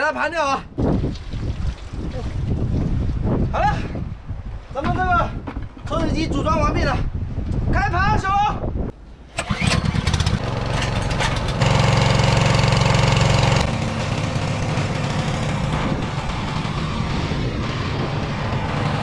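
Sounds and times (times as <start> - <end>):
water pump engine running: 9.4 - 19.0.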